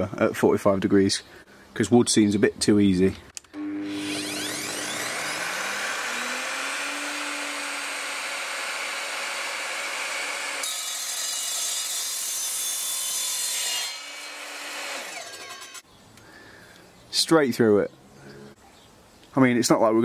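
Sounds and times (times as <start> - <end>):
mitre saw cutting copper pipe: 3.6 - 15.8
saw blade winding down: 3.6 - 15.8.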